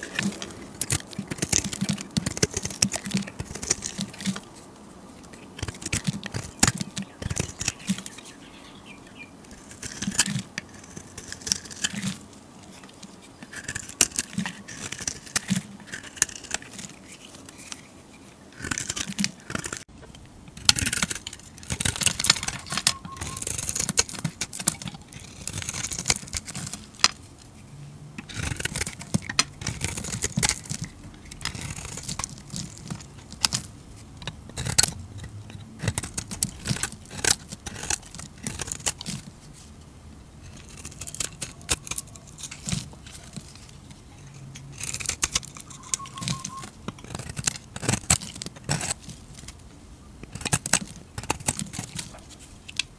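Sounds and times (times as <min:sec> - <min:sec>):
knife blade scraping soap: 0:00.0 - 0:04.4, 0:09.5 - 0:19.9, 0:20.6 - 0:27.2, 0:28.2 - 0:39.2, 0:40.4 - 0:49.6, 0:50.2 - 0:52.8
soap flakes crackling: 0:09.5 - 0:17.9, 0:20.6 - 0:27.4, 0:28.3 - 0:33.8, 0:35.8 - 0:39.7, 0:40.4 - 0:49.6, 0:50.3 - 0:52.9.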